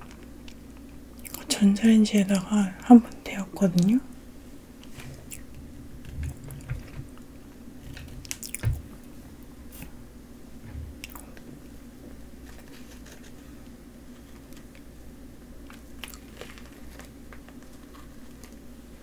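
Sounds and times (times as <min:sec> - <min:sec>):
steady low hum: 0:00.0 - 0:19.0
soft squishy tearing: 0:15.6 - 0:18.6.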